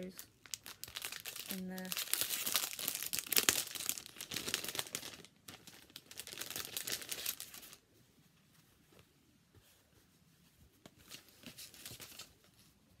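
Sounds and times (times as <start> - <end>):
plastic bag crinkling: 0.0 - 7.8.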